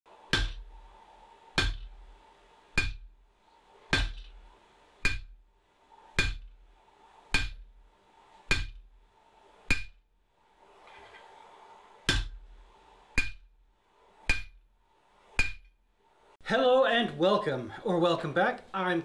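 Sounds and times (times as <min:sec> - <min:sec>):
hammer striking anvil: 0:00.3 - 0:00.7, 0:01.6 - 0:01.9, 0:02.8 - 0:03.1, 0:03.9 - 0:04.3, 0:05.0 - 0:05.4, 0:06.2 - 0:06.5, 0:07.3 - 0:07.6, 0:08.5 - 0:08.8, 0:09.7 - 0:10.0, 0:12.1 - 0:12.4, 0:13.2 - 0:13.5, 0:14.3 - 0:14.6, 0:15.4 - 0:15.7.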